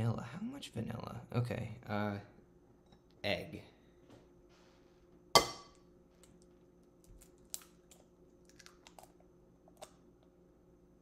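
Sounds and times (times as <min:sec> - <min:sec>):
eggshell crackling: 0:06.2 - 0:10.0
egg cracking: 0:06.2 - 0:10.3.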